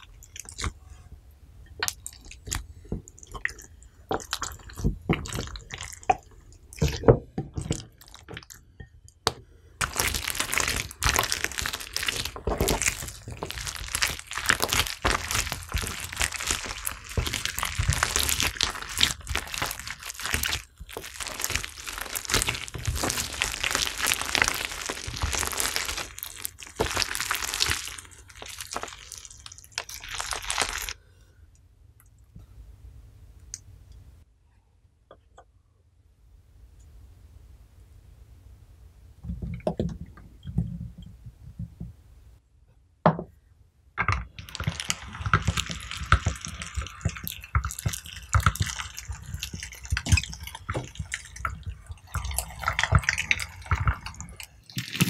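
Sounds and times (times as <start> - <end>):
slime crackling and popping: 0.0 - 0.8, 1.8 - 8.6, 9.2 - 31.0, 44.0 - 55.0.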